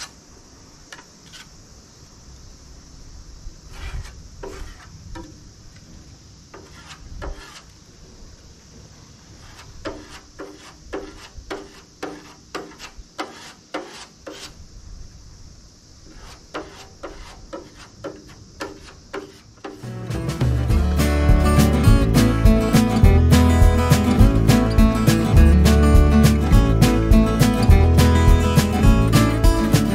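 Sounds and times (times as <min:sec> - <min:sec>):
putty spreader scraping filler: 0:06.6 - 0:07.7, 0:09.4 - 0:14.6.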